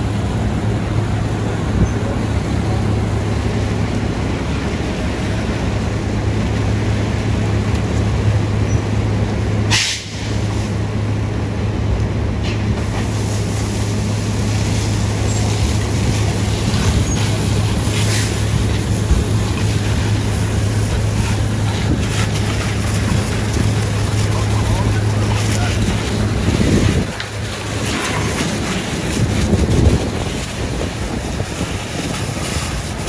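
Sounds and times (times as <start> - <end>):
diesel engine running: 0.0 - 33.0
fire hose stream rushing: 0.0 - 33.0
short sharp hiss: 9.7 - 10.7.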